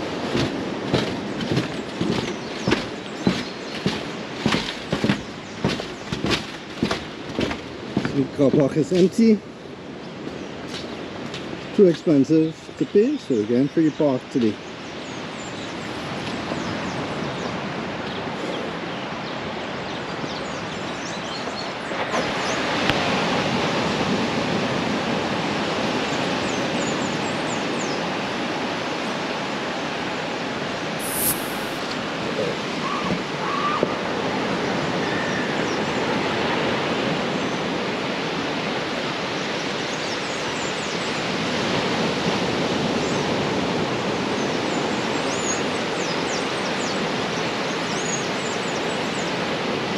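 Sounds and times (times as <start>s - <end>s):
surf breaking on beach: 31.0s - 33.9s.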